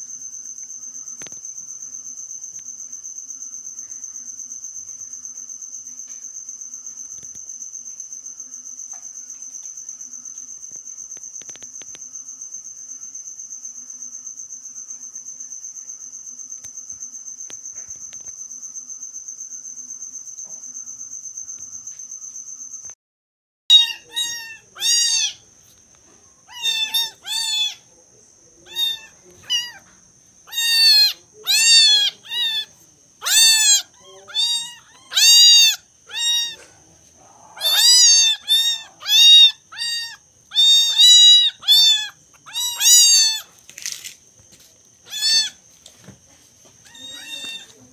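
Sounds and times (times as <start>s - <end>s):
cricket trill: 0.0s - 23.0s, 23.7s - 47.9s
kitten mewing: 23.7s - 25.4s, 26.5s - 27.8s, 28.6s - 29.8s, 30.5s - 43.5s, 45.1s - 45.6s, 46.9s - 47.9s.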